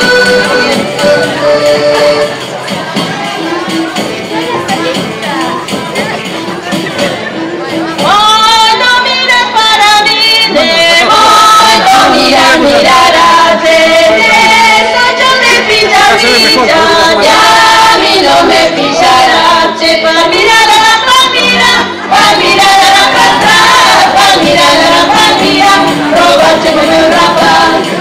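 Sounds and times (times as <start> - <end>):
group singing folk song: 0.0 - 4.2, 6.3 - 28.0
percussive beat: 0.0 - 8.7, 22.1 - 28.0.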